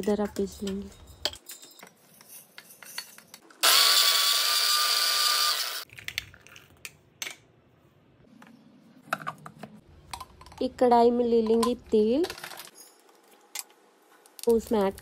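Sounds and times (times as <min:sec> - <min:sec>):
mixer grinder whining: 0:03.6 - 0:05.8.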